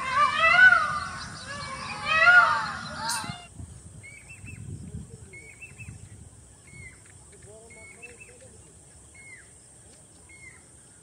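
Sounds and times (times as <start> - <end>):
bird whistled calls: 0.0 - 3.5.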